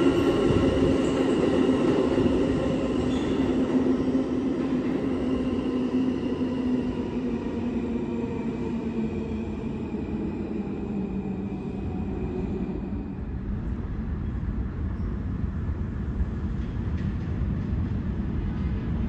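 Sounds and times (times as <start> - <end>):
subway train rumble and whine: 0.0 - 19.0.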